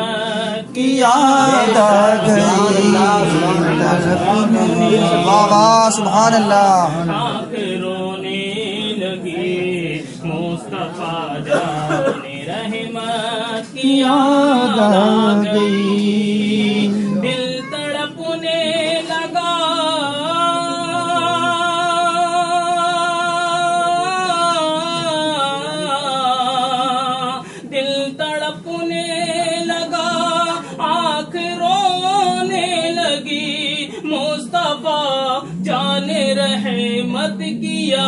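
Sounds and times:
person singing unaccompanied: 0.0s - 9.2s, 11.5s - 25.2s, 27.8s - 38.0s.

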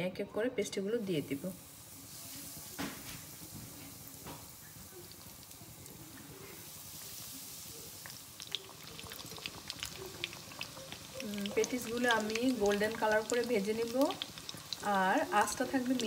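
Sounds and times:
patties sizzling in hot oil: 1.0s - 16.0s.

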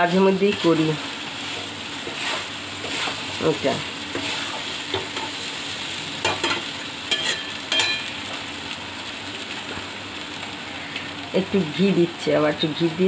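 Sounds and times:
frying sizzle: 0.0s - 13.0s
spatula scraping metal pan: 1.4s - 3.5s, 4.1s - 5.4s.

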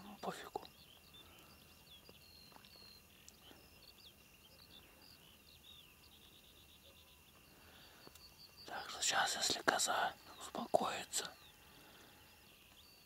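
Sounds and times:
songbirds chirping: 0.0s - 13.0s.

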